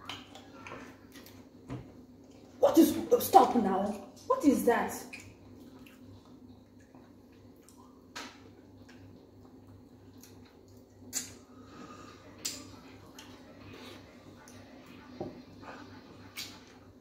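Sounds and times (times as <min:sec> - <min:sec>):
low steady hum: 0:00.0 - 0:17.0
squishing of soft food: 0:05.1 - 0:14.8.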